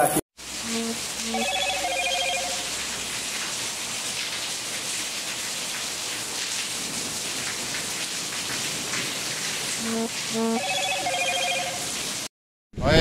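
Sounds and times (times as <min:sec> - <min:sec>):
rain on a tiled roof: 0:00.4 - 0:12.3.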